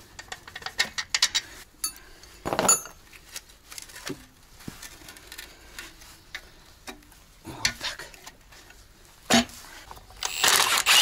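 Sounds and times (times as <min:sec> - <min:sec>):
metal parts and tools clinking: 0:00.6 - 0:03.0.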